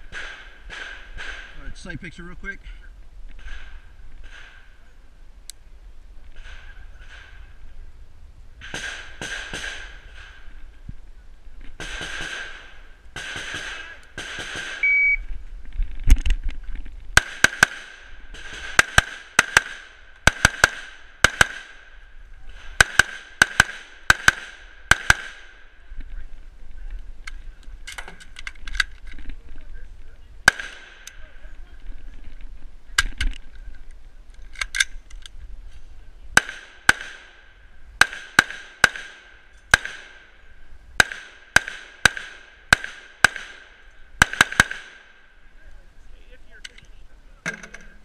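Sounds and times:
rifle firing rapidly: 8.6s - 10.3s, 11.8s - 14.8s, 17.2s - 21.8s, 22.8s - 25.4s, 30.5s - 31.0s, 41.0s - 45.1s
shot timer beep: 14.8s - 15.2s.

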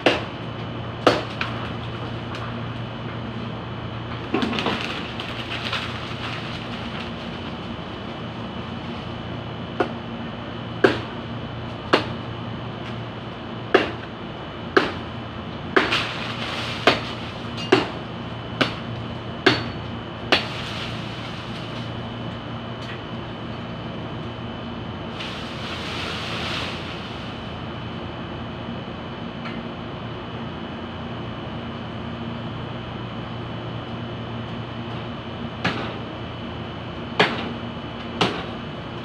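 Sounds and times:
machete chopping branches: 0.0s - 0.3s, 1.0s - 1.8s, 10.8s - 11.2s, 11.9s - 12.2s, 13.7s - 14.1s, 14.7s - 15.1s, 15.7s - 18.0s, 18.6s - 21.9s, 35.6s - 36.0s, 38.2s - 38.5s
steady background hum: 0.0s - 39.0s.

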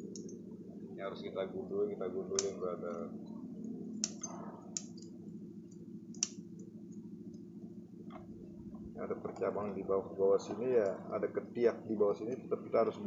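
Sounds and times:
low background hum: 0.0s - 13.0s
scissors snipping twigs: 2.3s - 2.6s, 4.0s - 5.1s, 6.1s - 6.4s.

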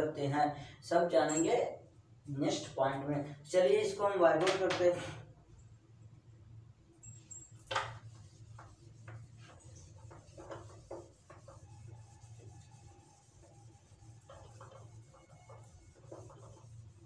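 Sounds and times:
duster rubbing on whiteboard: 7.9s - 17.0s.

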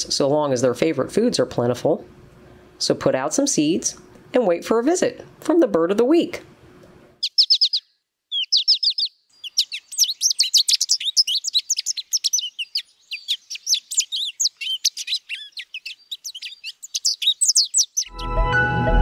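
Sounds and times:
finch song twitters and warbles: 7.2s - 18.6s.

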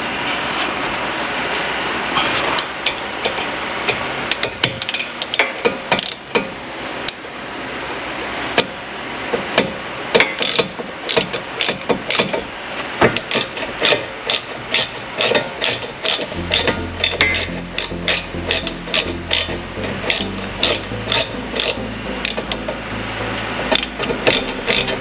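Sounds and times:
ratchet wrench clicking: 4.3s - 6.4s, 10.2s - 12.4s, 13.2s - 22.6s, 23.7s - 25.0s.

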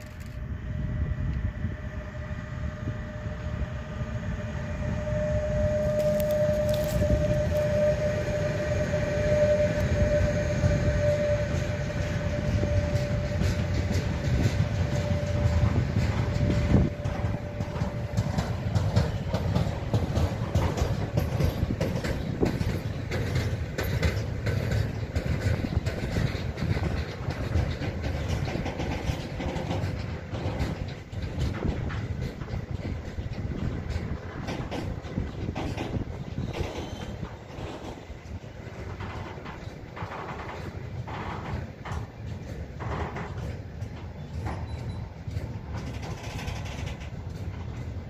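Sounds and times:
freight train rumbling past: 0.0s - 48.0s
locomotive whine: 0.0s - 48.0s
wagon wheels clattering: 12.2s - 48.0s.

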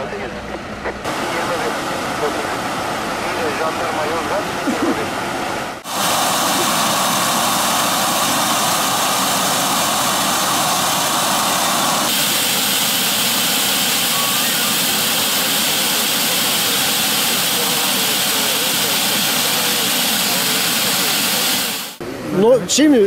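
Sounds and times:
gas hissing from ruptured pipe: 5.8s - 22.0s.

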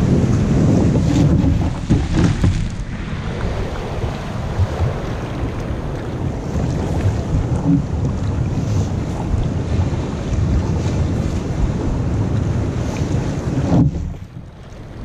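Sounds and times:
water splashing along kayak hull: 0.0s - 15.0s
wind buffeting microphone: 0.0s - 15.0s.

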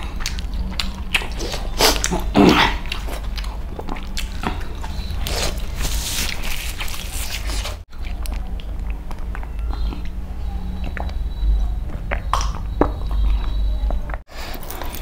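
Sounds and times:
man chewing food: 0.0s - 15.0s.

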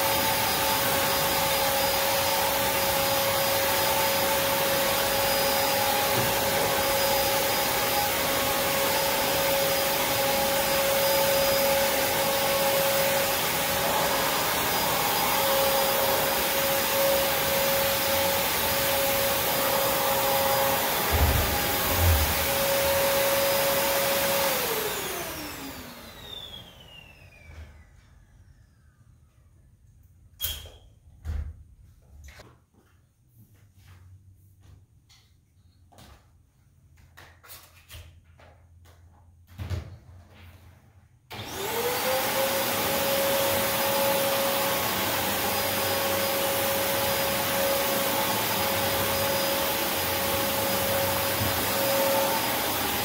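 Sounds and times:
vacuum motor spinning down: 0.0s - 28.0s, 41.3s - 53.0s
vacuum cleaner running: 0.0s - 28.1s, 41.3s - 53.0s.

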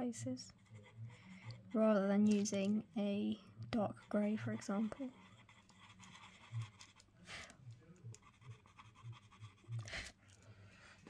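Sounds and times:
pencil scratching on paper: 0.4s - 2.7s, 3.8s - 7.5s, 8.1s - 10.1s.

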